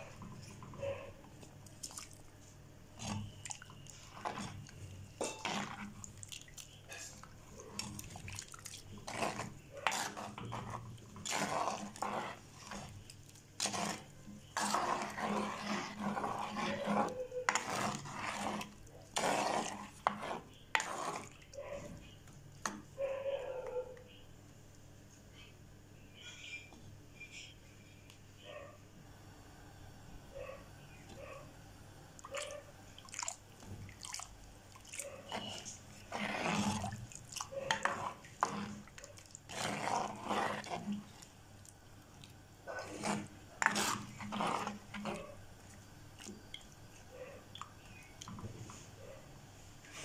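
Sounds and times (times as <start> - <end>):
ladle stirring gravy in pot: 0.0 - 23.0, 32.2 - 49.0
ladle scraping and knocking pot: 3.0 - 22.8, 35.2 - 41.3, 42.7 - 45.4.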